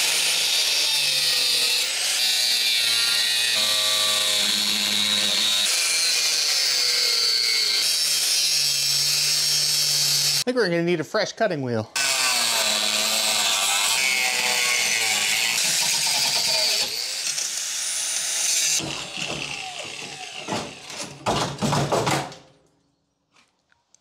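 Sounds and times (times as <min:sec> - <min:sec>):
angle grinder cutting sheet steel: 0:00.0 - 0:10.4, 0:12.0 - 0:21.1
metal knocks and clanks: 0:18.8 - 0:22.5.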